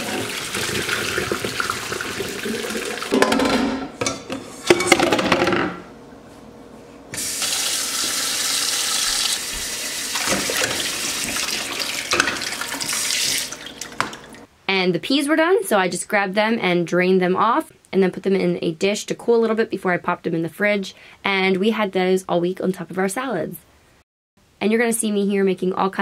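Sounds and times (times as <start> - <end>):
water poured into steel sink: 0.0 - 3.1, 7.2 - 14.4
tap running into bowl: 9.0 - 14.4.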